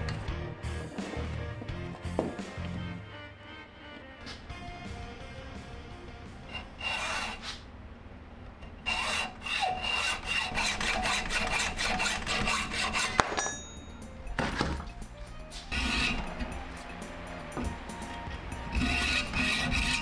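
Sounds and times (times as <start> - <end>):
hacksaw sawing wood: 6.5 - 7.6, 8.8 - 13.6, 15.7 - 16.6, 18.1 - 20.0.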